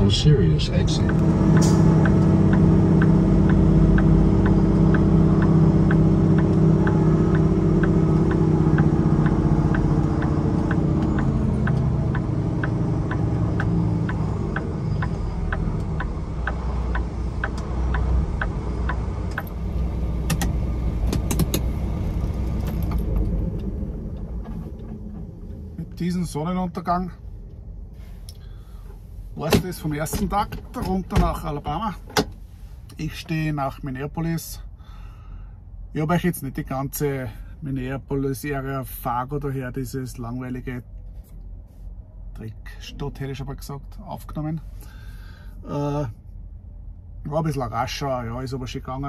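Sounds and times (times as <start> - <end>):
truck engine humming: 0.0 - 33.8
steady light ticking: 1.0 - 19.6
sharp clicks: 1.1 - 19.6.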